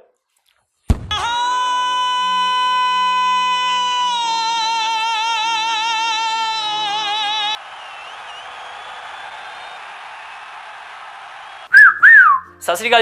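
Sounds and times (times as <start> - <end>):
person singing with vibrato: 1.1 - 7.6.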